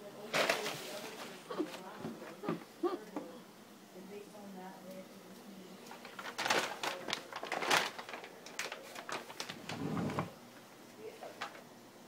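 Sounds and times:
paper bag crackling and rustling: 0.2s - 2.4s, 5.9s - 10.4s, 11.2s - 11.7s.

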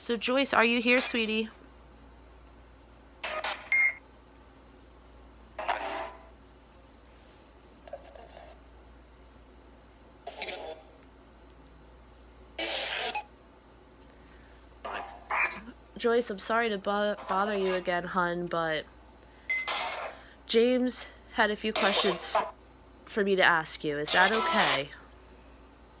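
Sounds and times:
radio static bursts: 3.2s - 4.0s, 24.1s - 25.0s.

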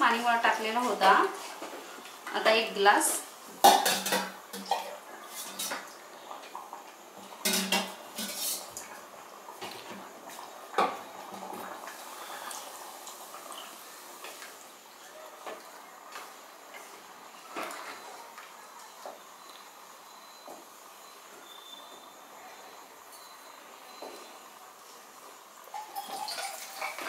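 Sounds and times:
wooden spatula stirring food: 9.5s - 19.3s.

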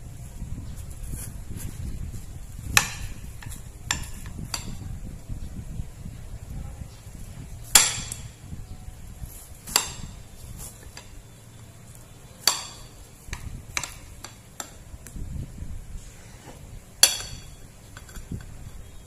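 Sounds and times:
cleaver chopping watermelon: 9.6s - 11.2s, 12.4s - 14.8s.

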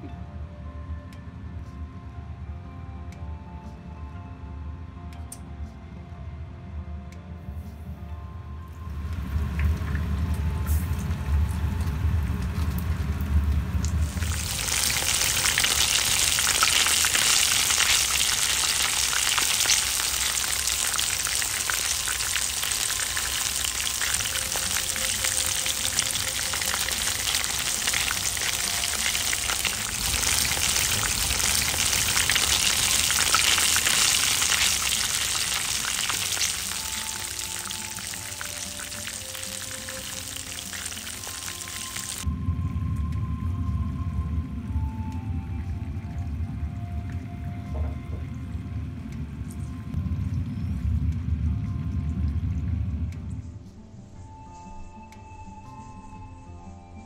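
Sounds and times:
chicken frying in oil: 9.0s - 42.3s
low rumble: 42.2s - 54.4s.

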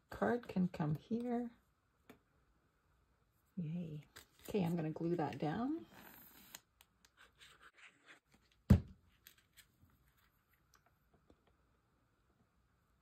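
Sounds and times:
paper and card rustling: 4.0s - 10.7s
thump on table: 8.7s - 9.0s.

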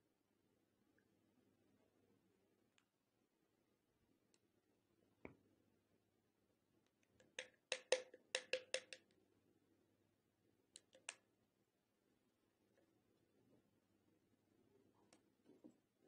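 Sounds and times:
plastic bottle clicking and tapping: 7.2s - 9.0s.

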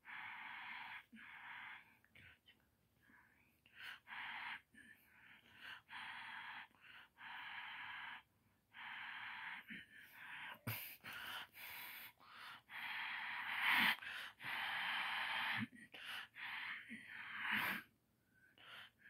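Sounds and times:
breathy whispering: 0.0s - 19.0s.

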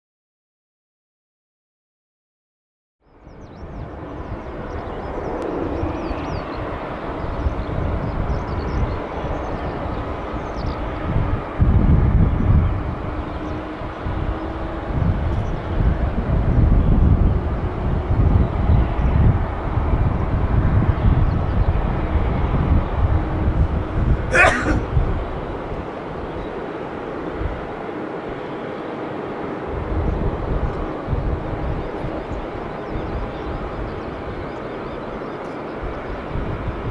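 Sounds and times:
distant jet engines rumbling: 3.2s - 36.9s.

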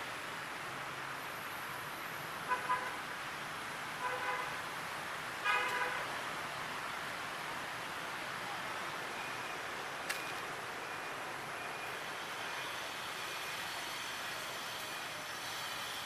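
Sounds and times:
vehicle horn honking: 5.4s - 6.0s.

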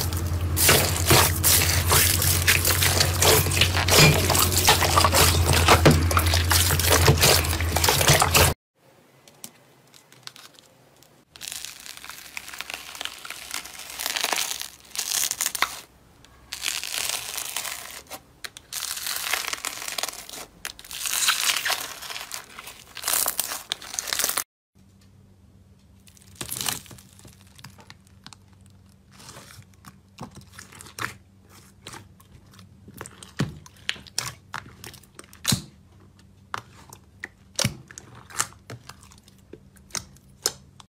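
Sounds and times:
slime sloshing in water: 0.0s - 8.6s
slime squishing and crinkling: 0.0s - 8.6s, 9.8s - 24.4s, 26.0s - 40.9s.

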